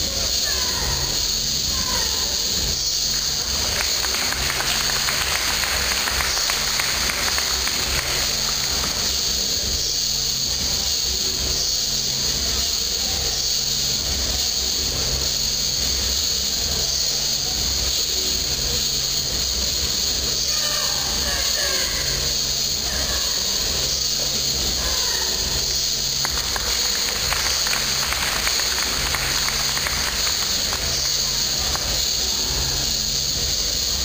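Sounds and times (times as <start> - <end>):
microphone hiss: 1.2 - 23.1, 23.8 - 34.0
applause: 3.1 - 9.4, 26.2 - 32.2.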